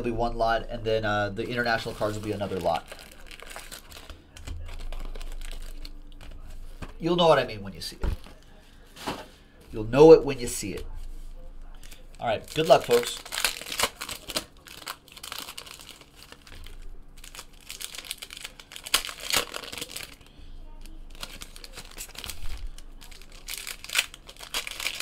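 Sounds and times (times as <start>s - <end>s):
foil packs tearing and crinkling: 1.5s - 6.9s, 11.8s - 25.0s.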